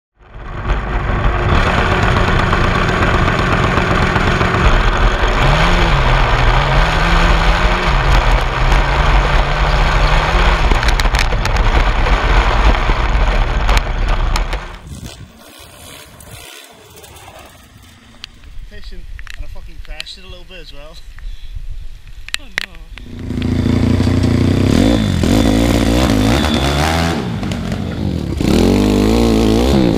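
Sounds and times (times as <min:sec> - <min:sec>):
lawn mower engine running hard: 0:00.2 - 0:18.2, 0:23.1 - 0:29.9
wind noise: 0:00.5 - 0:23.8.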